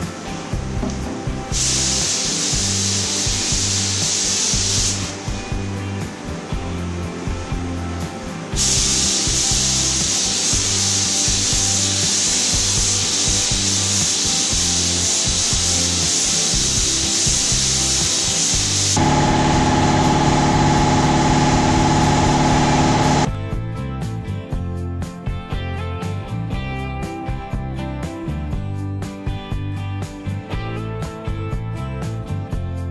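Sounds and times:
spray gun hissing: 0.9 - 5.3, 8.6 - 23.3
steady hum: 18.6 - 23.3.

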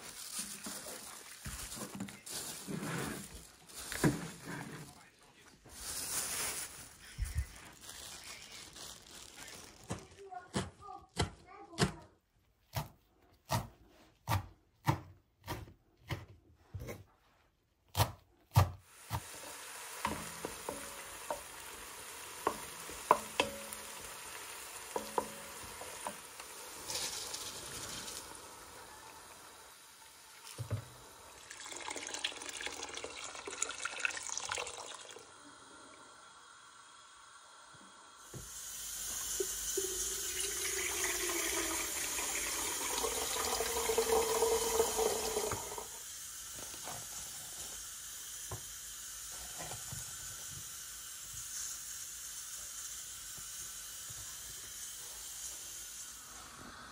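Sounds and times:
water pouring into kettle: 0.0 - 2.2, 18.9 - 47.2
herbs sizzling in hot oil: 0.0 - 4.8, 18.9 - 56.9
knife chopping herbs on wood: 12.7 - 16.3.

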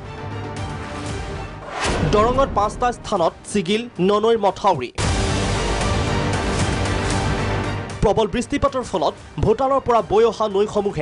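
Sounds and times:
news background music chords: 0.0 - 11.0
rising whoosh: 1.6 - 2.4.

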